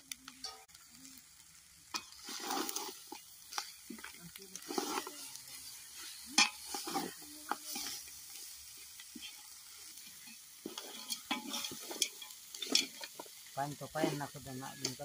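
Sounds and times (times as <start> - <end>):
chicken sizzling: 0.0 - 15.0
metal ladle scraping a pot: 1.9 - 13.4.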